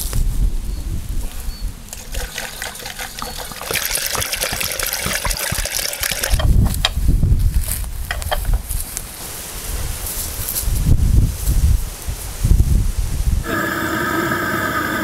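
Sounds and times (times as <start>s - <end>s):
water pouring through funnel: 1.9s - 6.9s.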